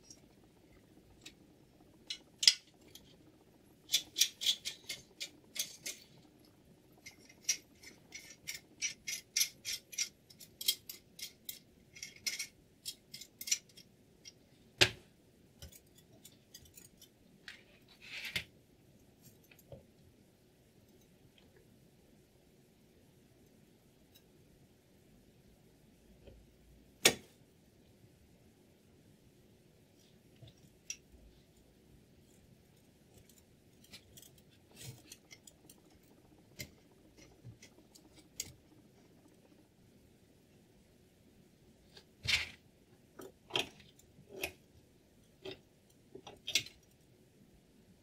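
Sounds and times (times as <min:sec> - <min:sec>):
small hard parts clicking: 0:00.0 - 0:14.4, 0:32.7 - 0:39.8.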